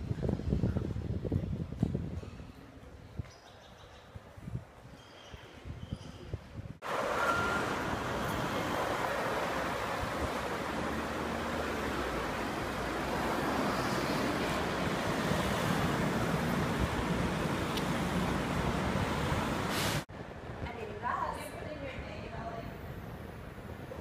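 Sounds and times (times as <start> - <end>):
cars driving past: 6.8 - 20.1.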